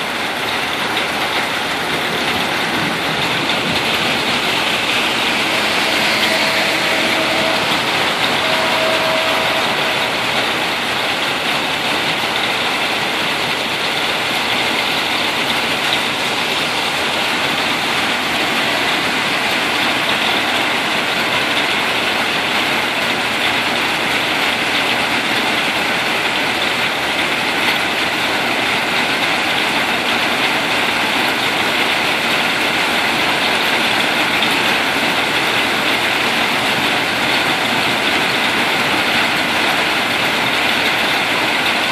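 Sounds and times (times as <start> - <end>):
rain on car roof: 0.0 - 4.3.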